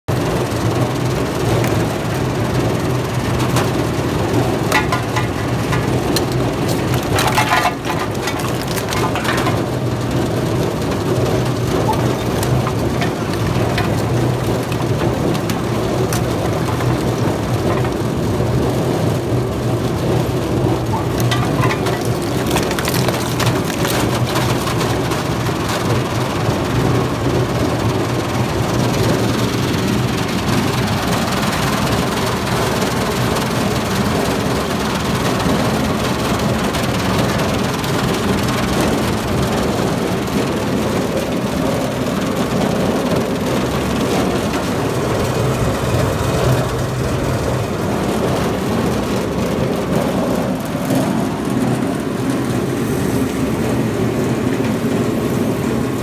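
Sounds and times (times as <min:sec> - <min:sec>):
shredder humming: 0:00.8 - 0:33.2
metal cracking and crunching: 0:03.2 - 0:18.6, 0:20.5 - 0:26.5.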